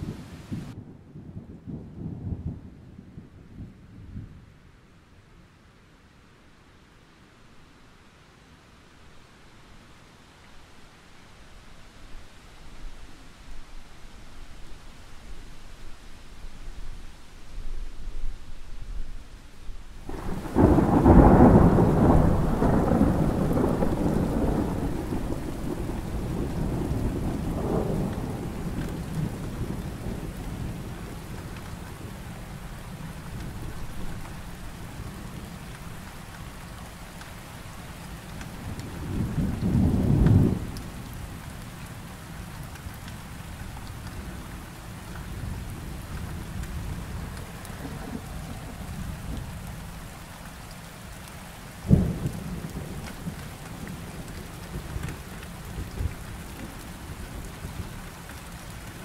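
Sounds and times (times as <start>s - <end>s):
rolling thunder: 0.0s - 4.4s, 20.1s - 32.2s, 38.7s - 41.2s, 45.3s - 50.1s, 51.9s - 56.8s
steady rain: 0.0s - 59.0s
loud thunder peal: 20.1s - 29.8s.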